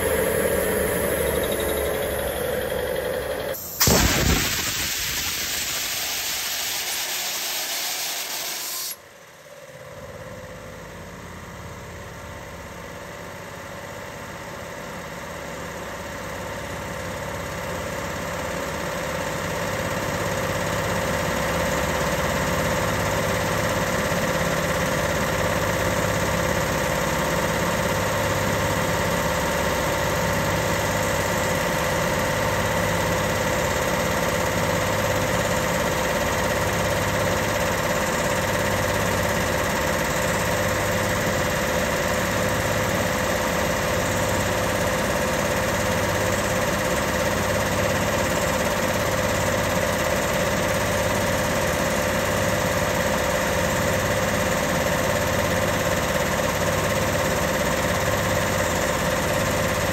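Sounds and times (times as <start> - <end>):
air compressor running: 0.0 - 9.0, 17.4 - 59.9
compressed air hissing: 0.0 - 9.0.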